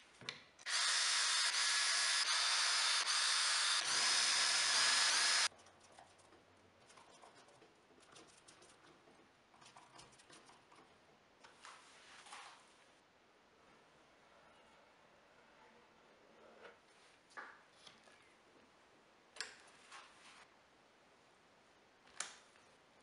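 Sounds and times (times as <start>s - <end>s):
cordless drill boring into wood: 0.7s - 5.5s.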